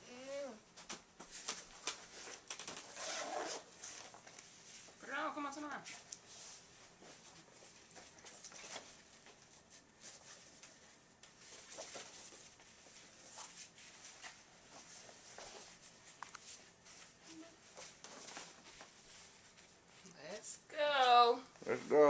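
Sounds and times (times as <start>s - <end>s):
backpack and clothing rustling: 1.3s - 4.9s.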